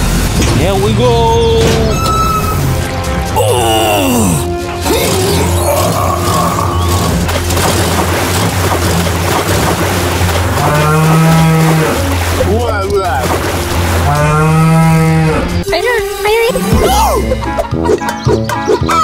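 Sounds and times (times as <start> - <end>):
cow mooing: 10.5 - 12.1, 14.0 - 15.6.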